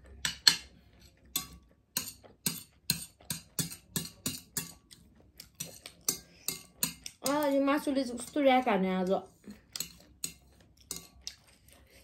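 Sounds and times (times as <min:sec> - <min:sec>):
person chewing noodles: 0:04.7 - 0:06.8, 0:09.5 - 0:12.0.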